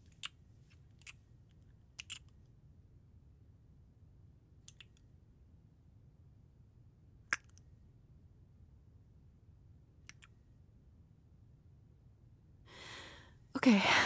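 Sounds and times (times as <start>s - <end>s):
soft intake of breath: 12.7s - 14.0s.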